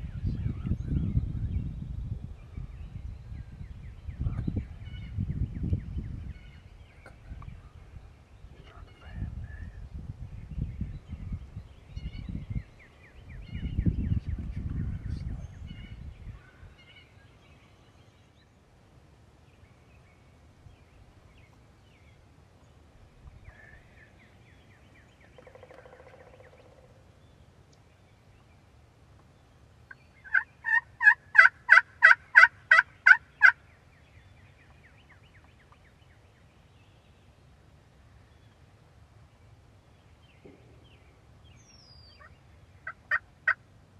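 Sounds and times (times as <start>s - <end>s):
wild turkey yelping: 30.2s - 33.6s, 42.1s - 43.6s.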